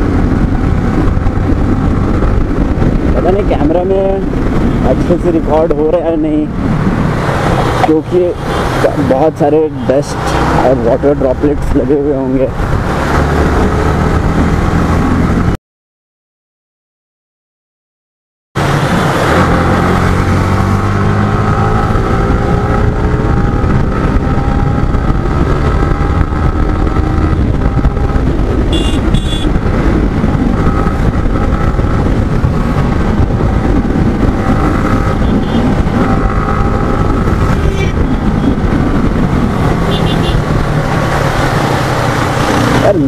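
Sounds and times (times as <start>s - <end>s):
motorcycle engine running: 19.0s - 43.0s.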